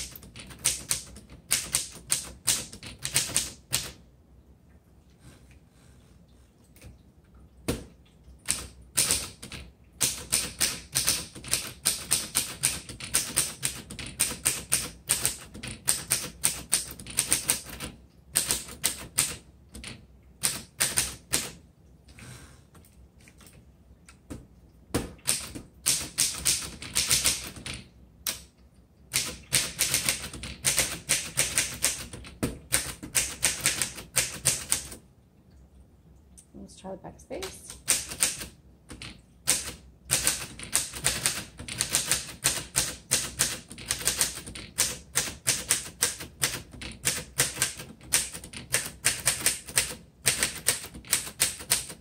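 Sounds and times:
manual typewriter keys clacking: 0.0 - 4.0, 8.4 - 21.6, 25.0 - 28.5, 29.1 - 35.0, 37.7 - 52.0.

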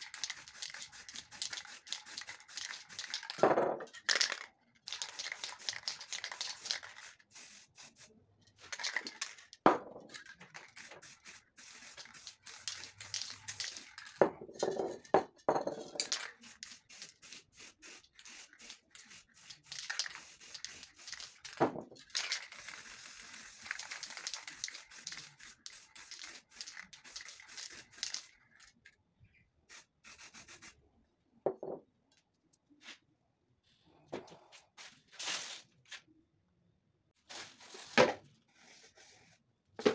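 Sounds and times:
spray paint cans hissing: 0.0 - 3.4, 4.0 - 9.5, 10.2 - 14.2, 15.9 - 28.7, 29.7 - 30.8.

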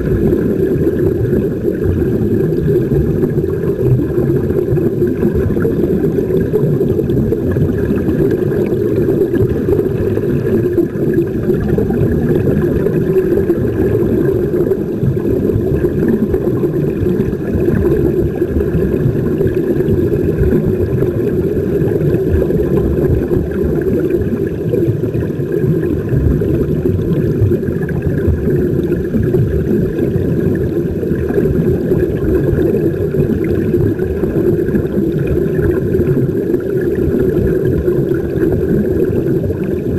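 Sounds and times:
underwater air bubbles rumbling: 0.0 - 39.9.

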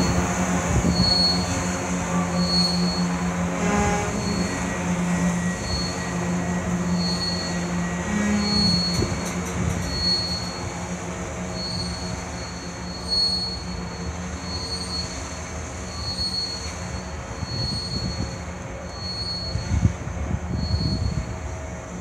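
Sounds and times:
high wheel squeal: 0.0 - 22.0
train wheels rumbling on rails: 0.0 - 22.0.

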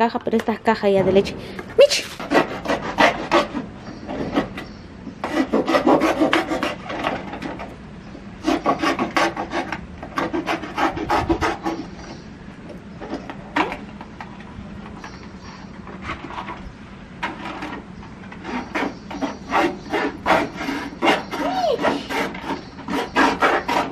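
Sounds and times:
knife sawing through cardboard carton: 2.0 - 7.6, 8.4 - 12.0, 18.4 - 23.9.

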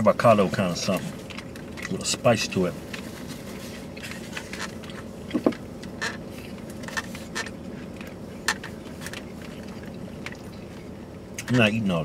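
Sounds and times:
car interior hum: 0.0 - 12.0
chewing: 0.9 - 2.1, 2.9 - 11.5.

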